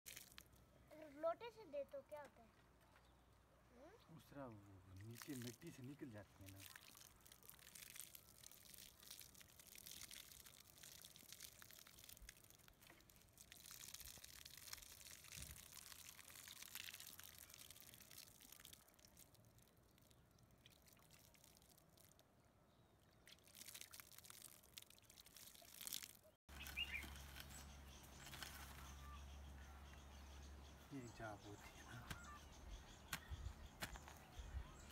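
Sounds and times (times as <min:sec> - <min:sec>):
water poured onto soil: 0:00.1 - 0:00.7, 0:04.4 - 0:22.3, 0:23.2 - 0:29.2
short bird chirps: 0:26.2 - 0:34.9.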